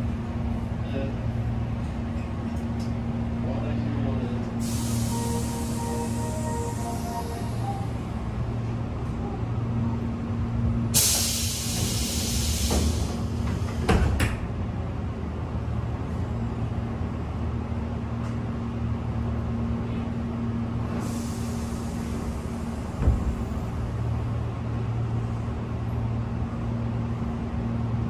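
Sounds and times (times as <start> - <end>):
compressed air hiss: 4.6 - 7.6, 11.0 - 13.2
train doors knocking shut: 12.6 - 14.5, 22.9 - 23.6
thump: 23.0 - 23.4.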